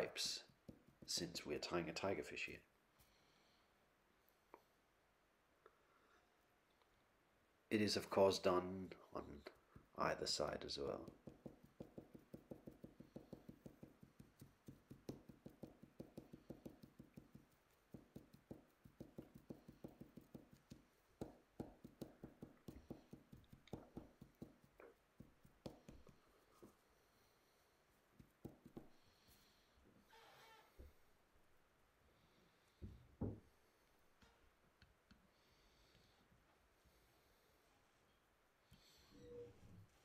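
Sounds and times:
marker tapping: 0.0s - 1.4s, 11.0s - 26.2s, 28.2s - 28.9s.

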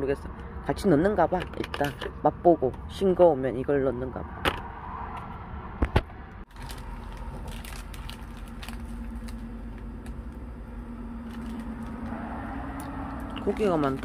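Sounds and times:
steady low hum: 5.4s - 14.0s
plastic packaging clicking: 6.5s - 10.4s
plastic packaging crinkling: 6.5s - 10.5s, 11.1s - 12.2s, 13.1s - 14.0s.

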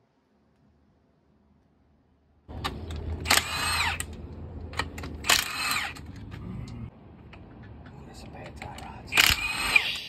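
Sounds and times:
steady low hum: 0.0s - 10.0s
impact wrench bursts: 3.2s - 4.1s, 5.2s - 6.1s, 9.1s - 10.0s.

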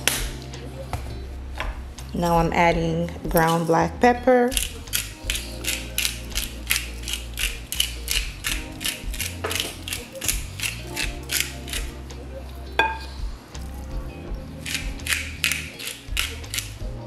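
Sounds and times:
pepper grinder ratchet clicks: 4.5s - 11.9s, 14.6s - 16.8s.

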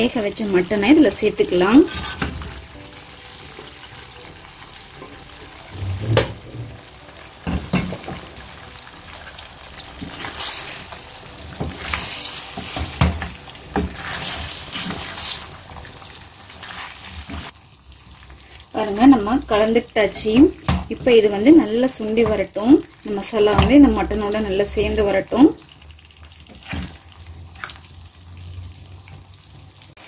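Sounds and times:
masala sizzling in a pan: 0.0s - 30.0s
spatula scraping pan: 1.7s - 2.6s, 10.0s - 11.0s, 13.8s - 15.6s.

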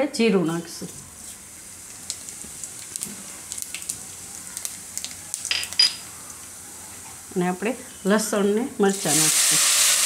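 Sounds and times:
seeds sizzling in hot oil: 1.2s - 5.5s, 8.9s - 10.0s.

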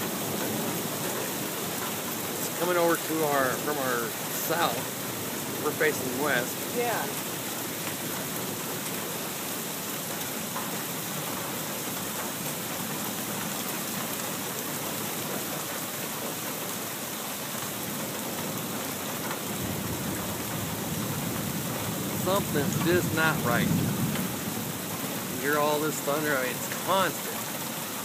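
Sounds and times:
heavy rain falling: 0.0s - 28.0s
low rumble of thunder: 19.5s - 25.4s.

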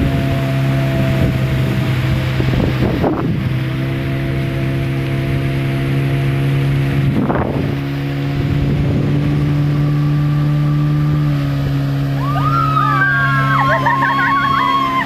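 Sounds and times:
outboard motor droning: 0.0s - 15.0s
water and wind rushing: 0.0s - 15.0s
passengers cheering: 12.1s - 15.0s.

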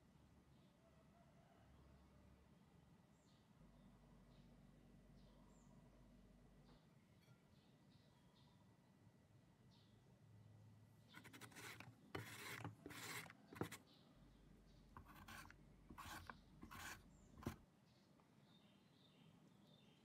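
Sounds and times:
mango rasping on grater: 11.2s - 13.8s, 15.0s - 17.6s.

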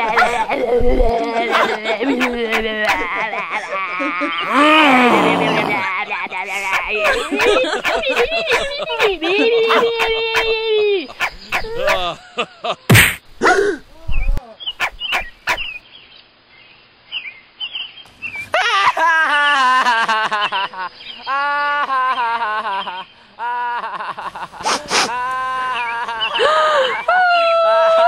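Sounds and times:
sharp knocks: 12.9s - 13.2s.

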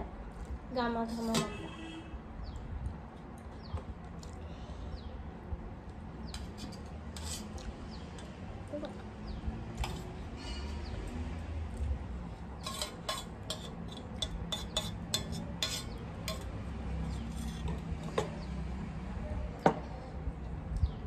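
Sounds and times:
metal tableware clinking: 12.6s - 16.6s.

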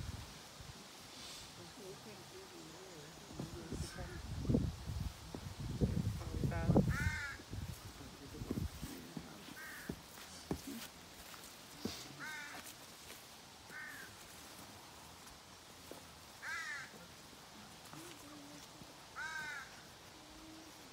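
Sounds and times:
crow cawing: 6.9s - 7.4s, 9.6s - 10.0s, 12.2s - 12.7s, 13.7s - 14.2s, 16.4s - 17.0s, 19.2s - 19.9s.

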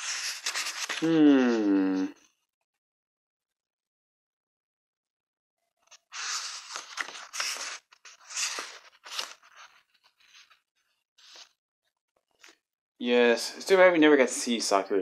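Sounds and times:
rustling and crinkling handling noise: 5.9s - 11.6s.

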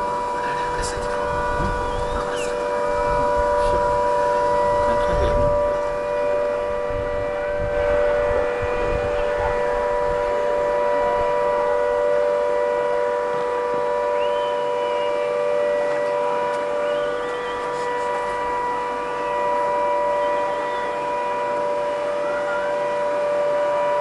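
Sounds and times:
wind rumble on microphone: 0.0s - 12.0s
warning siren steady tone: 0.0s - 24.0s
faint high whistles: 1.6s - 3.3s, 14.0s - 18.5s, 20.0s - 21.2s.

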